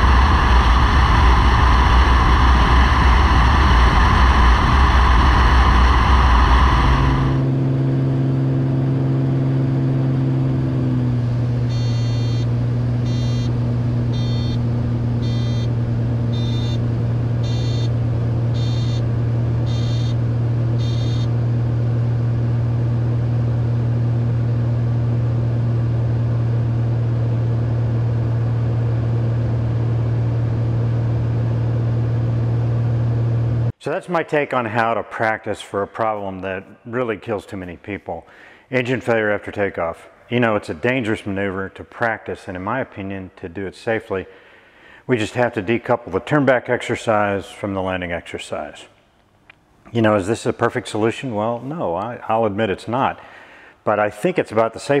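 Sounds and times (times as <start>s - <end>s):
wind and engine noise: 0.0s - 33.7s
airplane engine drone: 0.0s - 33.8s, 53.1s - 53.8s
electronic alert beeps: 11.7s - 12.5s, 13.1s - 13.6s, 14.2s - 14.6s, 15.2s - 15.7s, 16.4s - 16.8s, 17.4s - 17.9s, 18.6s - 19.0s, 19.7s - 20.2s, 20.8s - 21.3s.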